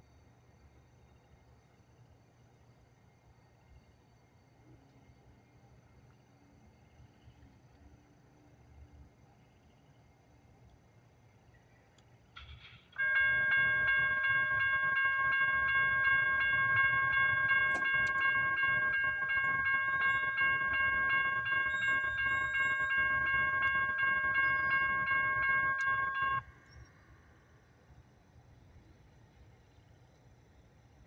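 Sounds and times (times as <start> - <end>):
railroad crossing bell ringing: 13.0 - 27.0.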